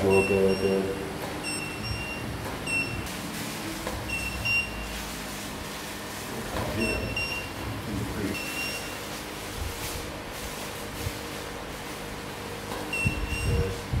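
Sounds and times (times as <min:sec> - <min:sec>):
room noise: 0:00.0 - 0:14.0
short high electronic beeps: 0:08.4 - 0:09.0.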